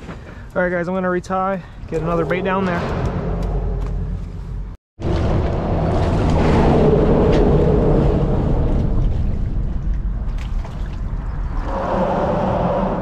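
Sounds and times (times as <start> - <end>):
steady low rumble: 1.7 - 11.7
fish thrashing and splashing: 9.0 - 11.3.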